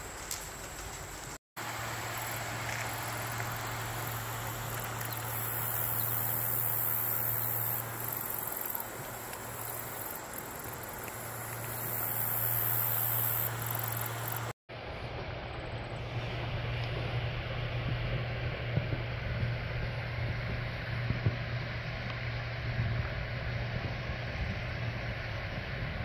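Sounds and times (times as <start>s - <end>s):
insects chirping: 0.0s - 14.6s
flowing river water: 1.6s - 26.0s.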